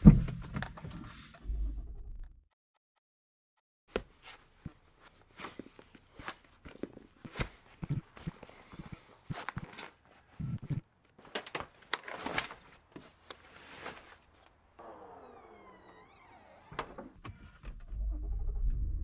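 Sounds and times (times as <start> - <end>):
rustling and clicks of gear: 5.4 - 14.6
liftgate motor whine: 14.8 - 17.2.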